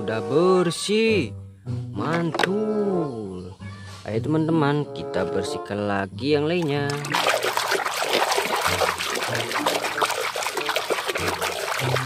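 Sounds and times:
hand splashing in water: 6.6s - 12.0s.

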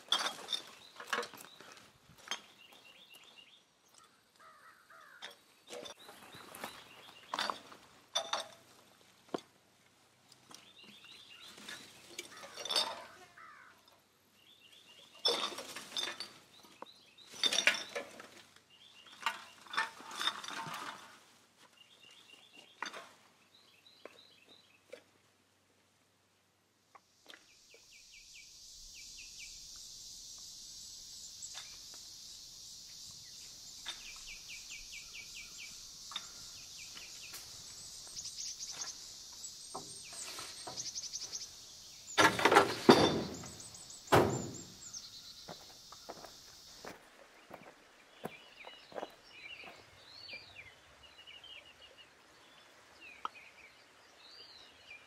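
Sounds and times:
birds chirping: 0.0s - 7.8s, 27.3s - 55.0s
rustling and crunching: 15.0s - 23.4s, 33.0s - 49.8s
loud knocks: 42.2s - 44.7s.

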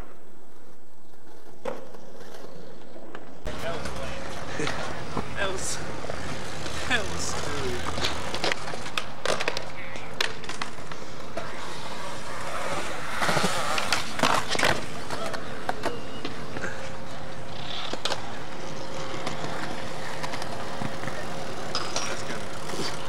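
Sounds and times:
skateboard wheels rolling on concrete: 0.0s - 23.0s
skateboard clacks: 6.0s - 23.0s.

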